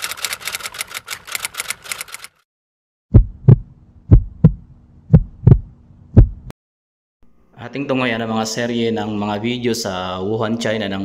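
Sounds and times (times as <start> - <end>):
rapid typewriter-like clicking: 0.0 - 2.4
heartbeat sound effect: 3.1 - 6.5.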